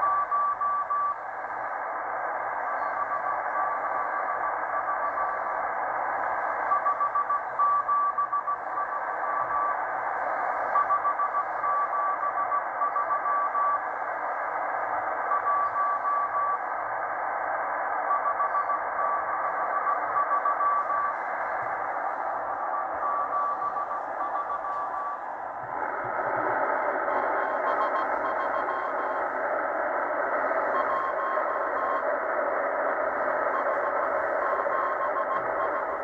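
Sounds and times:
morse code beeps: 0.0 - 1.2, 6.7 - 9.7, 10.7 - 13.8, 15.2 - 16.6, 18.1 - 36.0
radio static hiss: 0.0 - 36.0.

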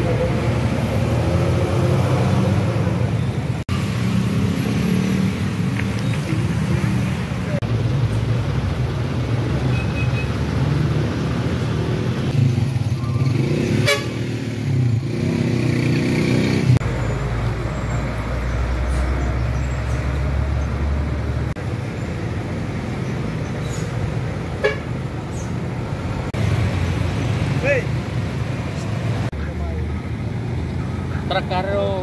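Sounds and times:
heavy vehicle rumble: 0.0 - 15.4, 16.1 - 32.0
road traffic engines: 0.0 - 32.0
car horn toot: 13.8 - 14.2.

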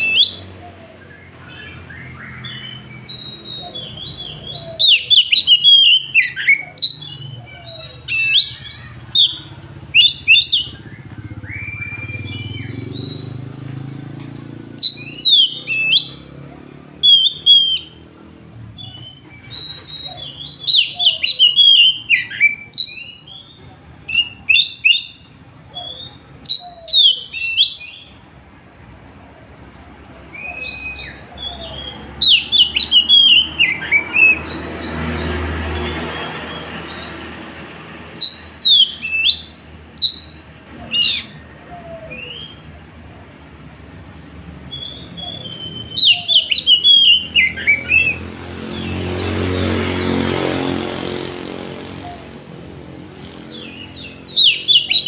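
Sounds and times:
bird singing whistled phrases: 0.0 - 13.5, 14.8 - 16.3, 17.0 - 18.1, 18.8 - 28.1, 30.3 - 35.0, 38.2 - 42.6, 44.7 - 48.2, 53.5 - 55.0.

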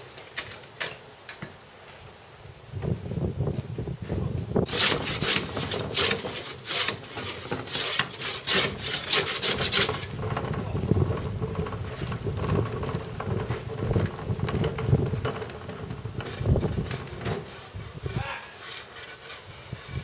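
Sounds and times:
wheelie bin wheels on gravel: 4.6 - 20.0
rough rasping scrapes: 4.7 - 10.2, 16.2 - 20.0.

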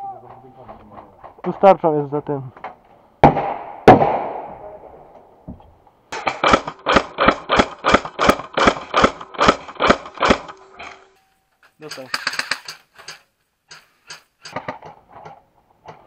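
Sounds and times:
airsoft rifle shots: 3.2 - 4.7, 6.1 - 10.6
loud echoing blast: 3.2 - 5.1.

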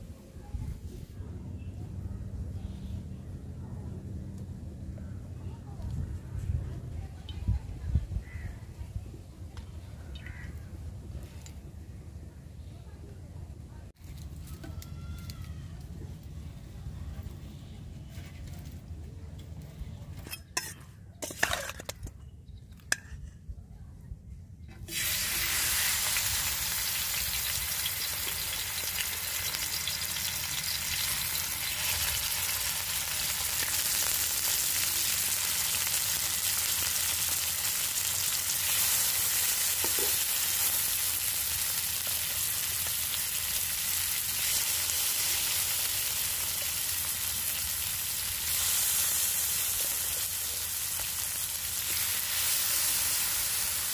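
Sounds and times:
fish sizzling in hot oil: 24.9 - 53.9.

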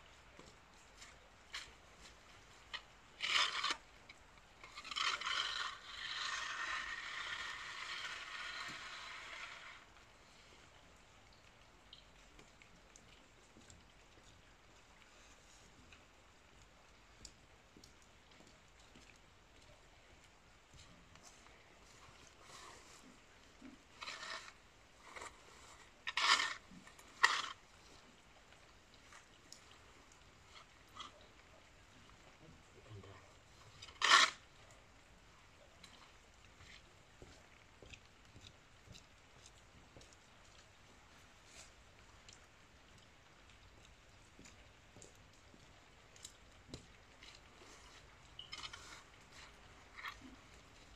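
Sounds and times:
fork raking straw on concrete: 4.6 - 9.8, 24.0 - 27.6, 33.9 - 34.4.

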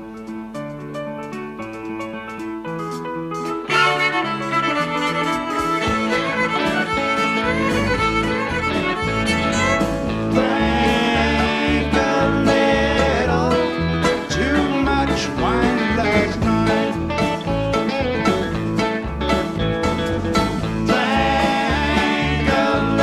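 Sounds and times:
live rock band playing: 0.0 - 23.0
violin melody: 3.4 - 14.0.

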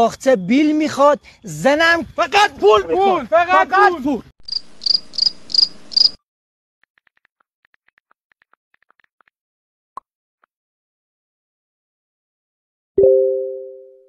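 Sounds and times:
cricket chirping: 0.0 - 6.2.

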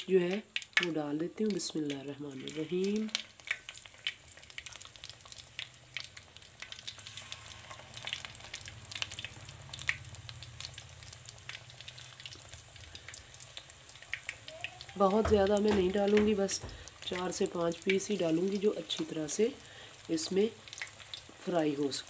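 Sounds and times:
fish frying in hot oil: 0.0 - 22.0.

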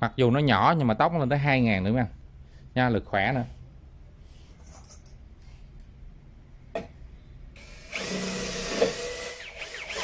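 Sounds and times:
cordless drill driving a screw: 7.6 - 10.0.

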